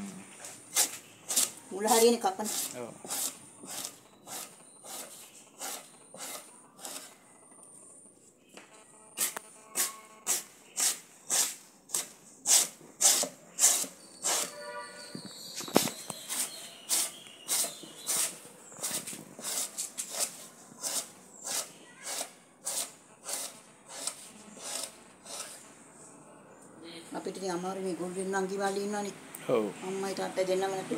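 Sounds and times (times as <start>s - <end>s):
wooden stick scraping leaf: 0.4s - 7.2s, 9.2s - 25.7s.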